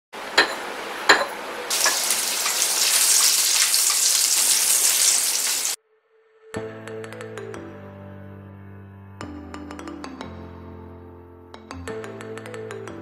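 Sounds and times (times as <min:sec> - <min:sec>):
food sizzling in hot oil: 0:01.7 - 0:05.8.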